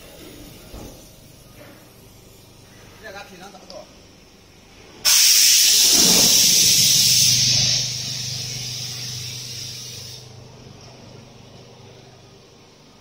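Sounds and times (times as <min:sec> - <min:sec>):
machine venting pressure hiss: 0:05.0 - 0:10.4
low steady machine hum: 0:05.8 - 0:13.0.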